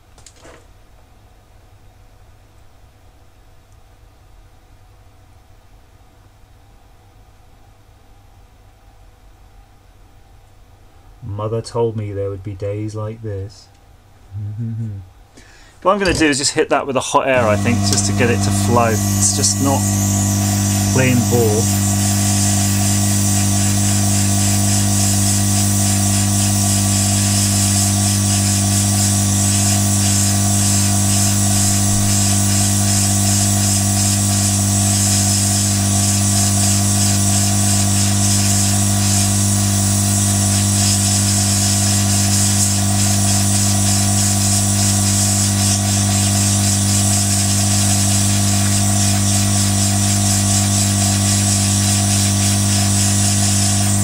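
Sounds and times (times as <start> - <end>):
steady low hum: 0.8 - 54.0
hot air gun hissing: 17.3 - 54.0.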